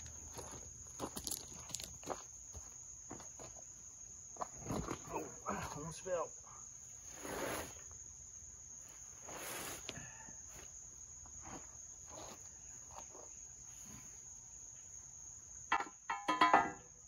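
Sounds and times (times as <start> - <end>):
insect chirring: 0.0 - 17.0
metal bar scraping on fabric: 7.1 - 7.8.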